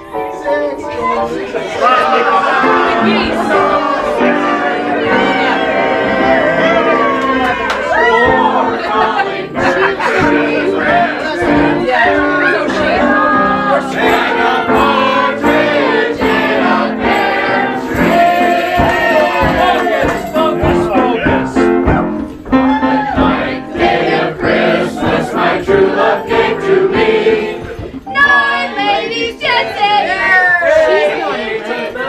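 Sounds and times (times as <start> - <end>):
group singing a christmas carol: 0.0 - 32.0
people talking: 27.0 - 32.0.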